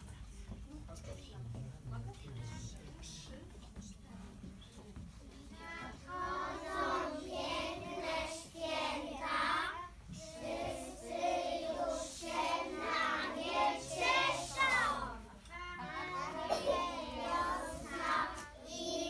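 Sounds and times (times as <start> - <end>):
children singing: 6.1 - 19.0.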